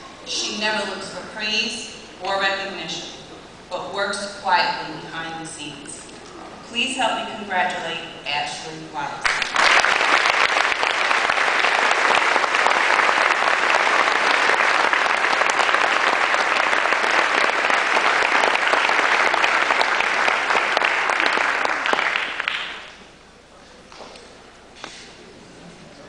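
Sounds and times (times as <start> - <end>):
audience applauding: 9.2 - 23.0.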